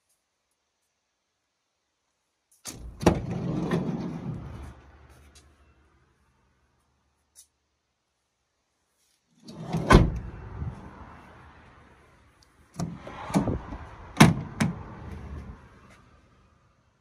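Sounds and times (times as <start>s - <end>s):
van sliding door slamming: 2.7s - 4.6s, 9.5s - 10.4s, 12.8s - 14.9s.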